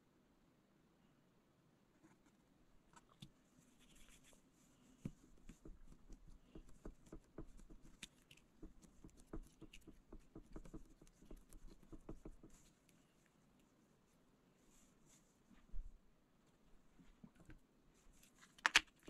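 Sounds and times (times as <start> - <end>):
fingers tapping and rubbing clay: 5.0 - 12.6.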